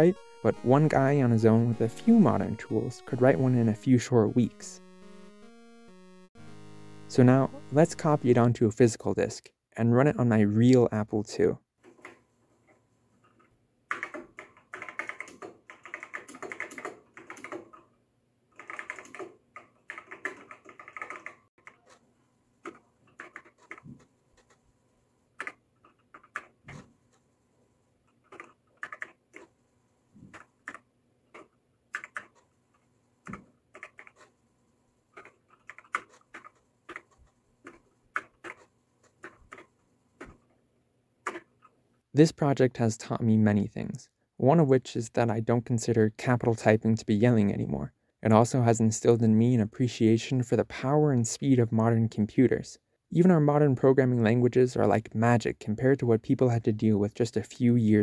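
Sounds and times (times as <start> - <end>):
keyboard keys clacking: 0.0 - 6.2, 13.2 - 17.9, 18.6 - 24.6, 28.1 - 34.4, 35.0 - 40.6.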